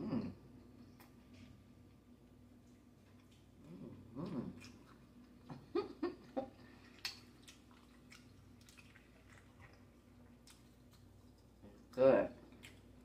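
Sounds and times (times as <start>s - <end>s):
chewing and mouth smacking: 2.6s - 5.6s, 6.5s - 13.0s.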